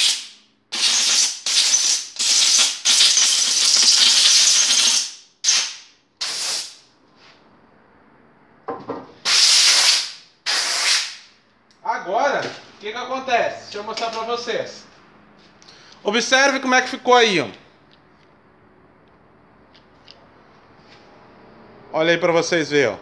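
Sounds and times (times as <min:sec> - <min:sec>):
compressed air blow gun hissing: 0:00.0 - 0:06.8, 0:09.2 - 0:11.2.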